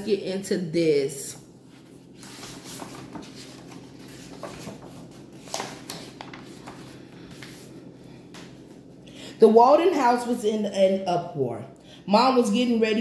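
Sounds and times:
paper rustling: 1.7 - 7.8
book pages flapping: 1.8 - 8.8.

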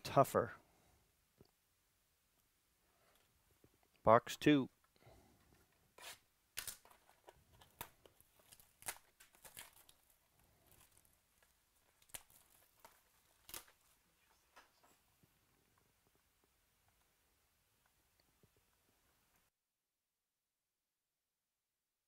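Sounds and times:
plastic wrap crackling and ripping: 6.0 - 14.0.

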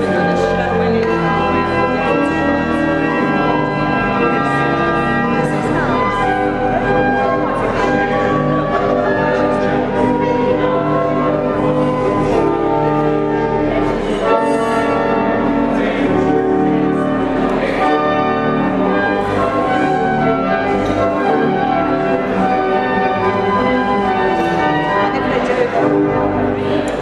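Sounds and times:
pipe organ chords: 0.0 - 27.0.

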